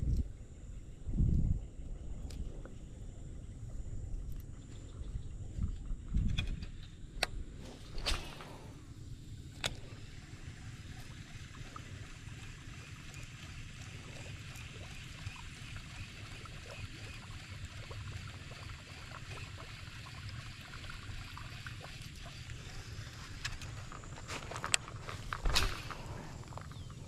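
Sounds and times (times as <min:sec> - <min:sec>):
faint small ticks: 0:00.0 - 0:00.4
wind buffeting microphone: 0:00.0 - 0:08.8.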